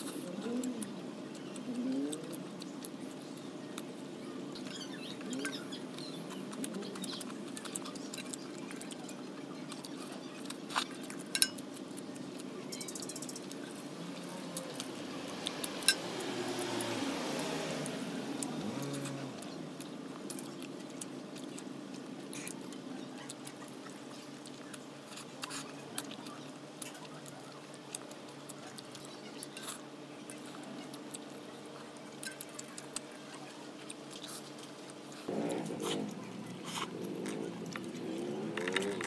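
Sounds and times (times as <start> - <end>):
chewing and lip-smacking: 0.0 - 39.0
steady low hum: 0.0 - 39.0
noodle slurp: 35.2 - 39.0.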